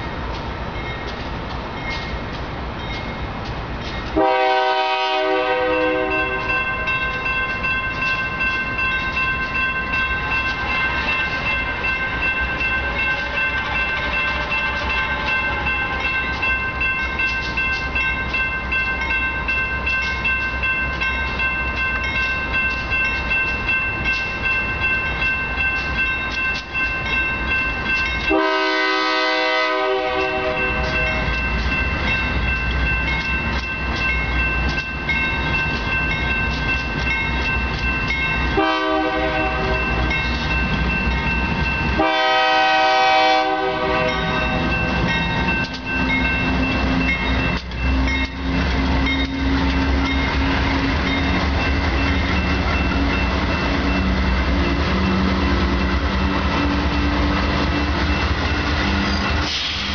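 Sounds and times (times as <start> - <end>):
railroad crossing bell ringing: 0.0 - 59.9
locomotive horn blast: 4.2 - 6.5, 28.3 - 31.2, 38.6 - 39.8, 42.0 - 44.7.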